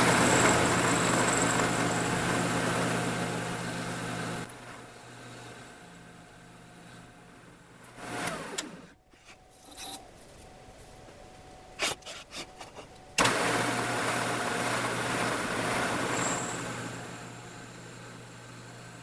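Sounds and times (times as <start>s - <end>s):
drill press motor winding down: 0.0s - 9.0s, 13.2s - 19.0s
drill press humming and drilling: 0.0s - 10.0s, 13.2s - 19.0s.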